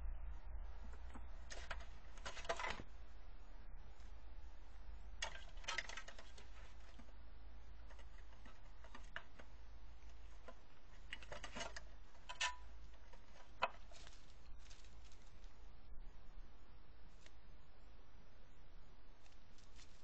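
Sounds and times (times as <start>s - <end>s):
claws scratching on metal and bark: 1.0s - 2.9s, 5.1s - 15.7s, 19.1s - 20.0s.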